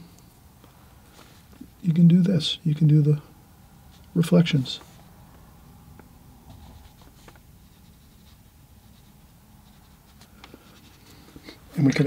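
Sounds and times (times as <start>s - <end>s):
brush stroking on paper: 6.5s - 11.6s.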